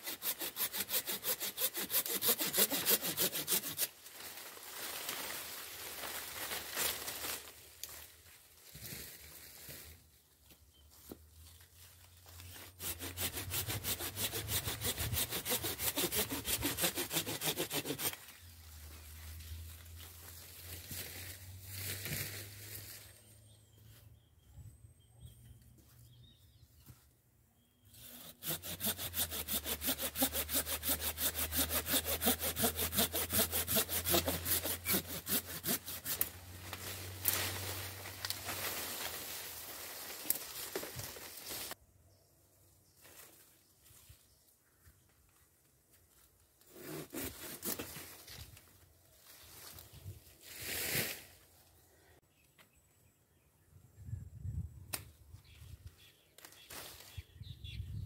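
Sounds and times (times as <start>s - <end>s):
hand saw cutting branch: 0.0s - 4.0s, 12.5s - 18.4s, 28.0s - 41.8s, 46.7s - 48.3s.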